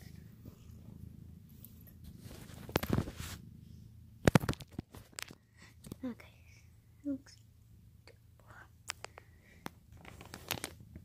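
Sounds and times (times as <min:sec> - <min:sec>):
faint low rumble: 0:00.0 - 0:11.0.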